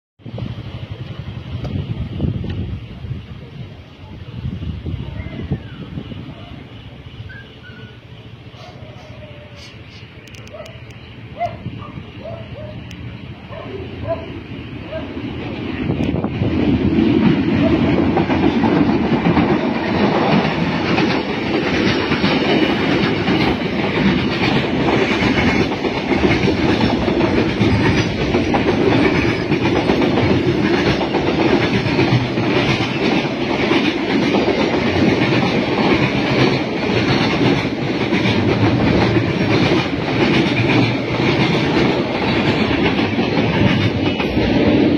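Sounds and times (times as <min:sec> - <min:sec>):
train wheels clattering over rail joints: 0:11.4 - 0:44.9.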